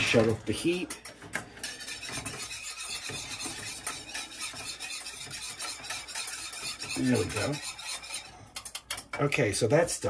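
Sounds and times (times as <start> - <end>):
spoon scraping sauce in pot: 0.1 - 9.2
spoon clicking against pan: 8.6 - 9.2.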